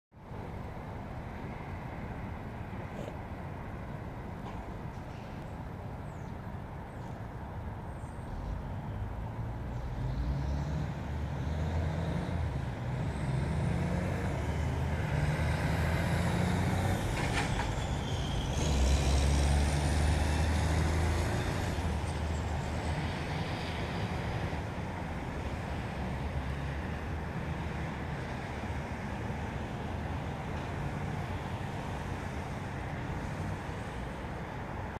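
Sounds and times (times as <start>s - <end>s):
street traffic passing: 0.2s - 34.9s
truck engine rumbling: 8.6s - 34.7s.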